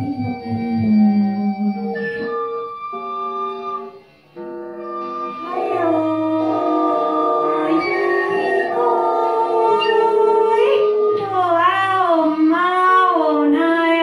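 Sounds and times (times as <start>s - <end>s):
layered held tones: 0.0s - 14.0s
sliding melody: 0.0s - 14.0s.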